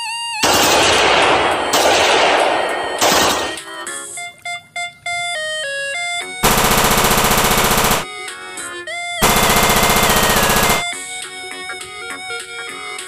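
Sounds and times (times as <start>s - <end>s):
rifle firing rapidly: 0.4s - 3.7s, 6.4s - 8.1s, 9.2s - 10.9s
toy gun beeping tune: 6.4s - 8.1s, 9.2s - 11.0s.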